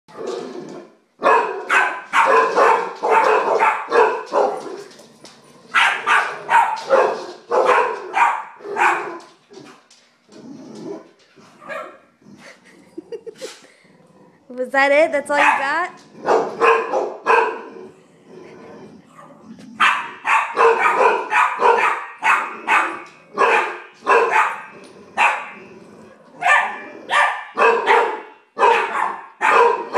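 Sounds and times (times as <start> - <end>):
dogs barking rapidly: 1.2 - 5.0, 5.7 - 9.4, 15.3 - 17.7, 19.2 - 25.6, 26.4 - 29.9.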